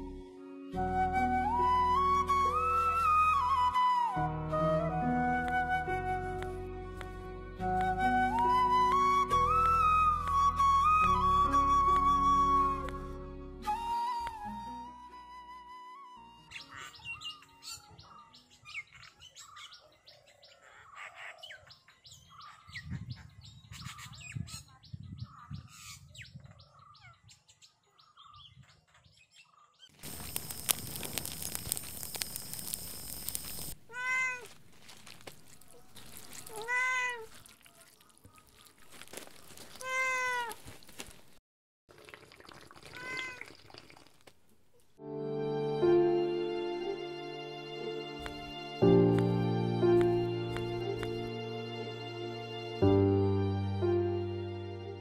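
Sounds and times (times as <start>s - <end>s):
cat meowing: 33.9s - 34.5s, 36.4s - 37.4s, 39.8s - 40.6s, 42.9s - 43.5s.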